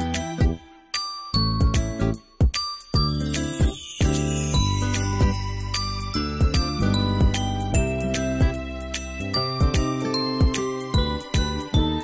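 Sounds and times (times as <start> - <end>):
bell-like tinkling notes: 0.9 - 12.0
low bass notes: 4.0 - 10.3.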